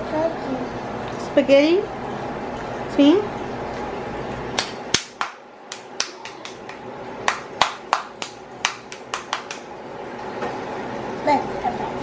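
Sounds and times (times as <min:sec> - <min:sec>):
child clapping hands: 0:04.6 - 0:09.7.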